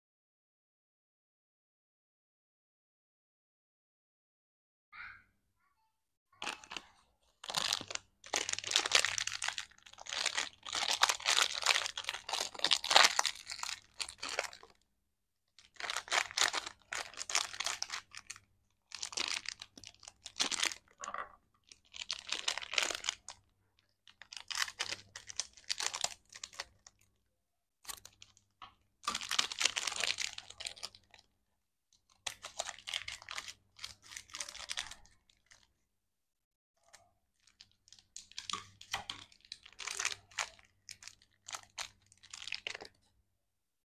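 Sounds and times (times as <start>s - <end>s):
plastic wrapper crinkling: 6.4s - 14.8s, 15.6s - 27.1s, 27.8s - 31.3s, 32.1s - 35.7s, 36.9s - 43.0s.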